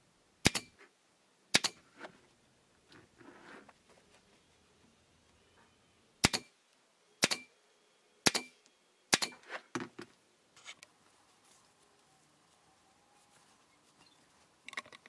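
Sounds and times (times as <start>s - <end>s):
staple gun firing: 1.5s - 1.8s, 6.2s - 6.5s, 7.2s - 7.5s, 8.3s - 8.5s, 9.1s - 9.4s.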